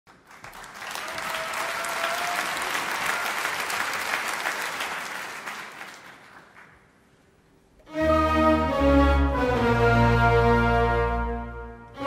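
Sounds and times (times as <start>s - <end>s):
audience applauding: 0.1s - 7.1s.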